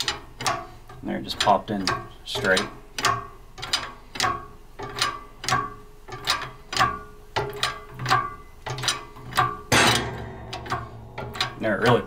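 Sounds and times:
shop press metallic clicks: 1.3s - 12.0s
loud metallic crack: 9.7s - 11.7s.

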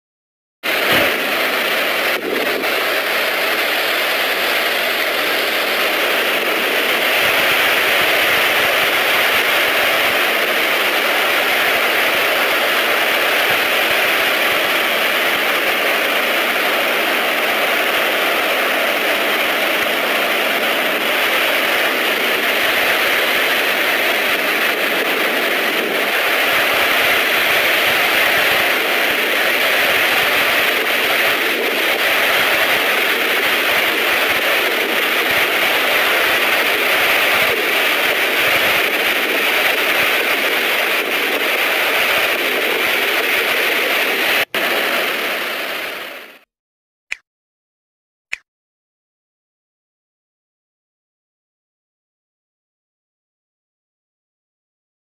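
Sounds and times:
surf breaking on shore: 0.7s - 46.4s.

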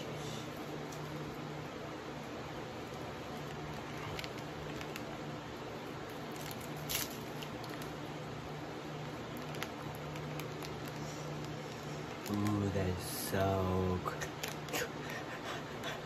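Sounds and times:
steady low hum: 0.0s - 16.0s
snack packaging rustling: 2.7s - 8.2s, 8.9s - 13.1s, 14.1s - 15.0s.

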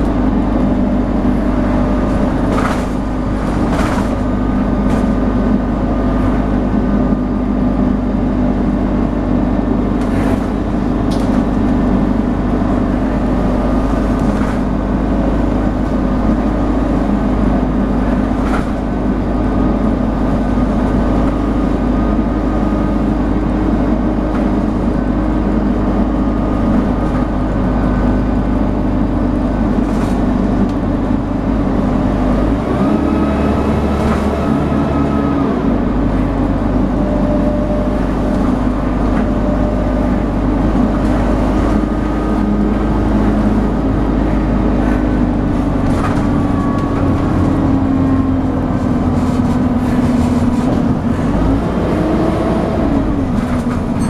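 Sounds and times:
bus diesel engine running: 0.0s - 54.0s
road drone: 0.0s - 54.0s.

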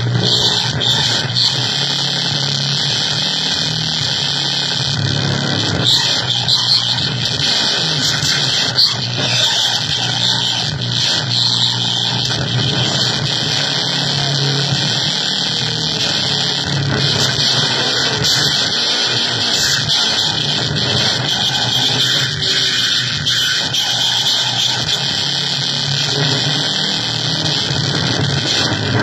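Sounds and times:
harsh electronic noise music: 0.0s - 29.0s.

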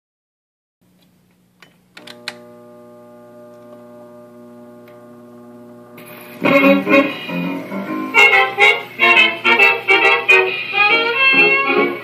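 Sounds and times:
steady machine hum: 1.4s - 12.0s.

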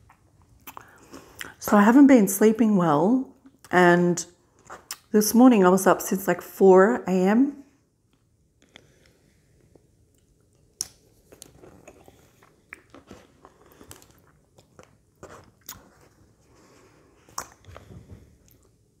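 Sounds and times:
person chewing food: 0.0s - 1.6s, 8.0s - 18.9s.

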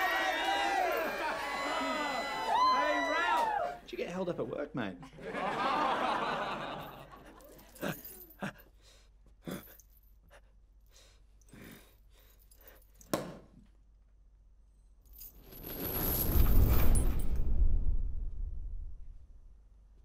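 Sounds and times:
party crowd laughing and whooping: 0.0s - 3.8s, 5.1s - 7.5s.

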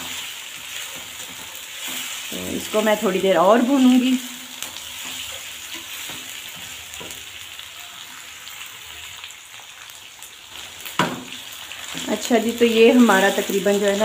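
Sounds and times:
spatula scraping a pan: 0.0s - 3.9s, 4.6s - 7.4s
chicken sizzling in oil: 0.0s - 14.0s.

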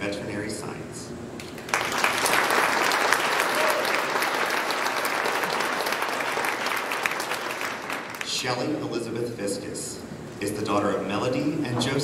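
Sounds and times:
audience applauding: 1.4s - 8.3s.

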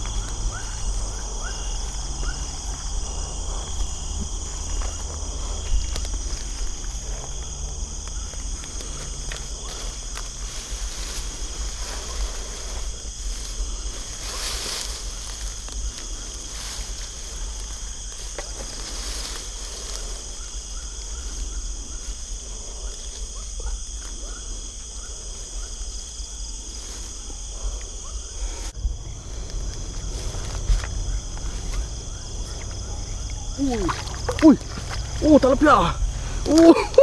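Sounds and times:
faint rustles: 0.0s - 37.0s
insects and crickets chirping: 0.0s - 37.0s
low rumble: 28.4s - 35.3s.

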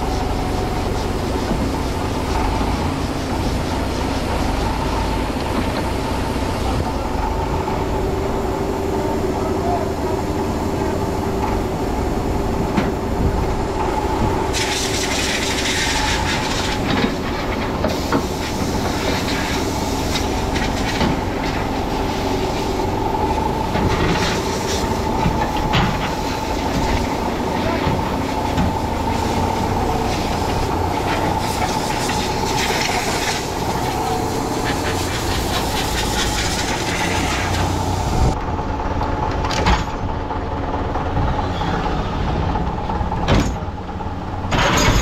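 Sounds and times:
heavy machine engine whining: 0.0s - 45.0s
metallic clanks and knocks: 43.2s - 43.7s, 44.5s - 45.0s.

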